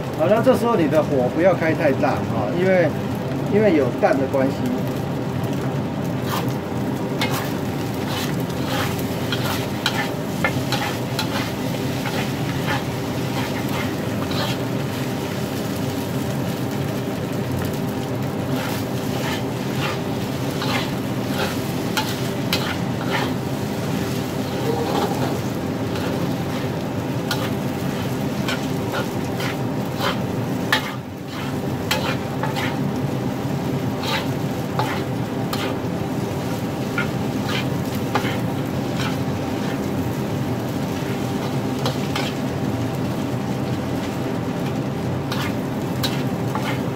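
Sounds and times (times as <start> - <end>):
food sizzling: 0.0 - 46.9
metal ladle scraping wok: 7.2 - 14.7, 20.6 - 23.4, 24.1 - 27.6, 28.4 - 32.8, 34.0 - 35.8.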